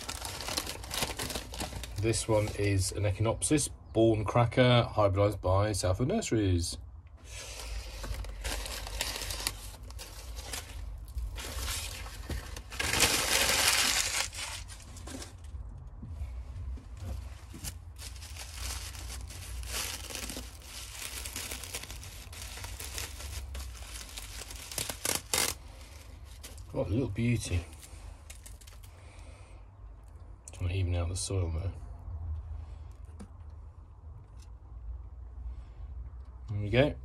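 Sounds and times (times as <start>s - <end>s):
newspaper crinkling and tearing: 0.0s - 2.9s, 7.3s - 15.5s, 17.1s - 28.9s
plastic bag rustling: 0.0s - 2.9s, 7.3s - 15.5s, 16.9s - 28.9s.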